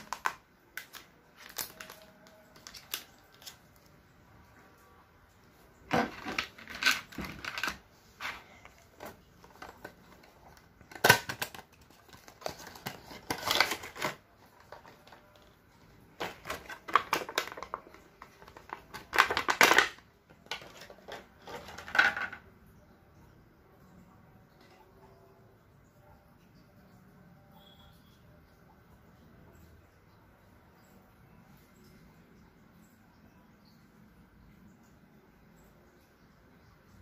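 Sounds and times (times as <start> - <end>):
plastic crinkling: 0.0 - 4.0, 5.8 - 22.4.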